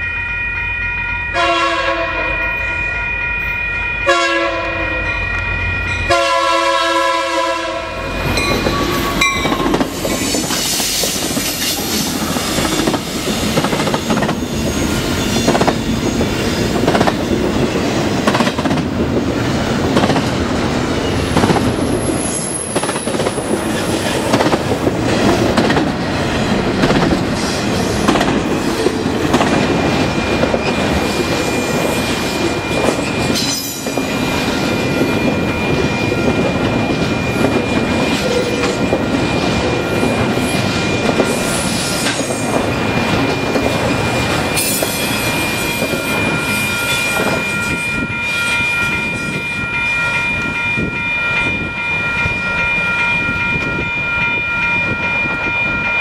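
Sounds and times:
train rumble: 0.0 - 56.0
locomotive air horn chord: 1.3 - 2.4, 4.0 - 5.0, 6.1 - 8.2
wheels clacking over rail joints: 22.7 - 46.3.

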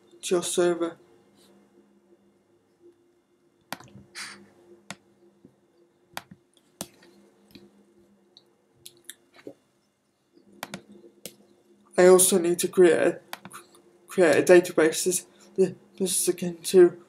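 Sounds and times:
faint steady hum: 0.0 - 17.0
computer mouse clicks: 3.7 - 5.0, 10.6 - 11.4, 13.3 - 13.6.

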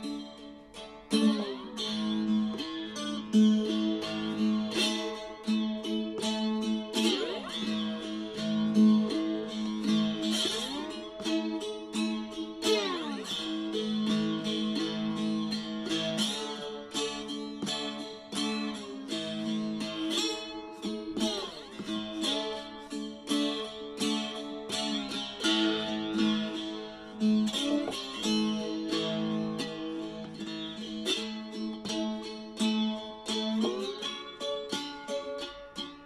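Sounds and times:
cigar box guitar picked notes: 0.0 - 36.0.

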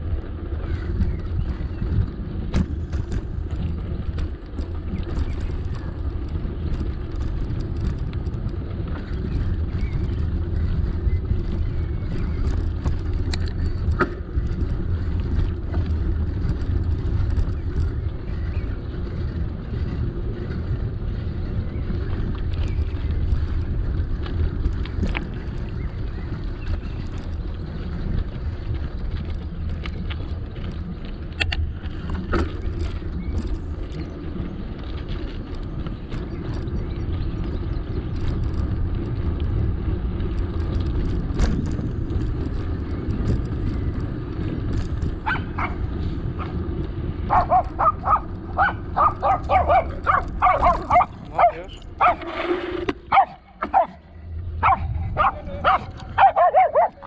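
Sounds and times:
wind on microphone: 0.0 - 57.0
dog barking rapidly: 45.2 - 46.6, 47.2 - 52.3, 53.1 - 54.0, 54.6 - 57.0.

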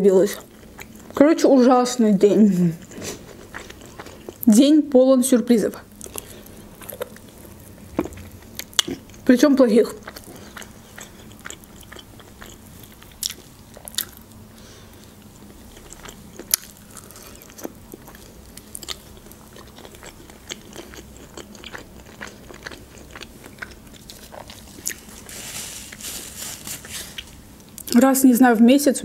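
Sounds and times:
chewing and biting: 2.8 - 4.5, 6.0 - 9.3, 10.0 - 14.4, 15.1 - 25.3
clicks and smacks of eating: 10.0 - 14.3, 15.8 - 25.0
paper napkin rustling: 24.5 - 27.4.

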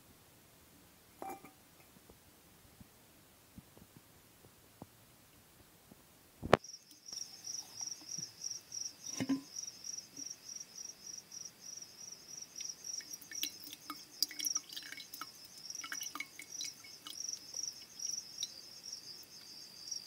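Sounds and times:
cricket chirping: 6.4 - 20.0.

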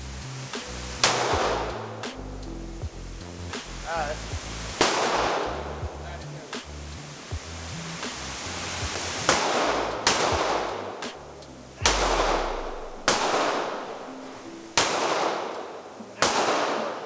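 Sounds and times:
handgun shots with echo: 9.3 - 10.7, 11.8 - 13.9, 14.8 - 17.0.

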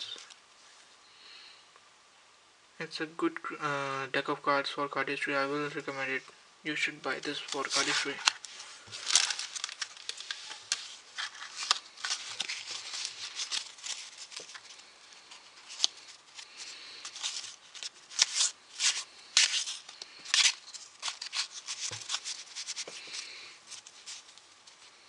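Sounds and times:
cards rustling: 7.1 - 25.0
playing cards clicking and snapping: 17.1 - 23.0.

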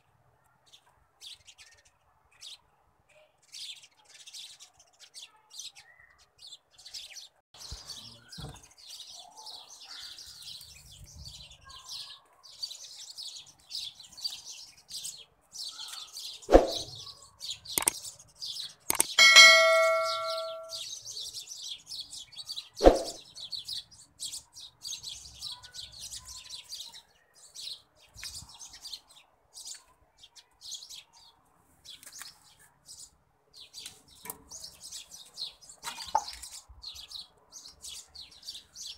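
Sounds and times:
metal tongs knocking on pan: 19.2 - 20.8.

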